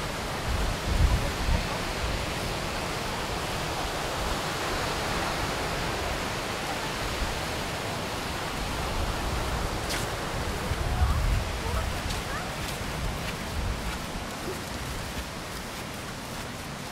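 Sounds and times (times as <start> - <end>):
surf washing onto beach: 0.0 - 16.9.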